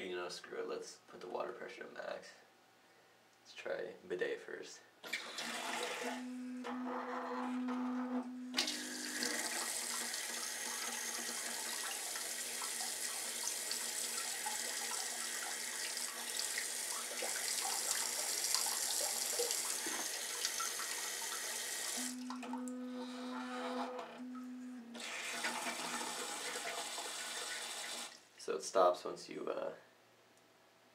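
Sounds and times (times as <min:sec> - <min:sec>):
short electric hum: 0:05.7 - 0:09.7, 0:22.0 - 0:26.8.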